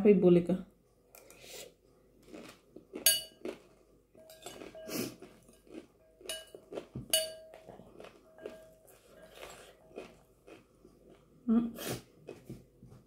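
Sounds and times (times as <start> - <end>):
metal spoon scraping glass bowl: 3.0 - 3.4, 4.2 - 5.6, 6.3 - 7.6.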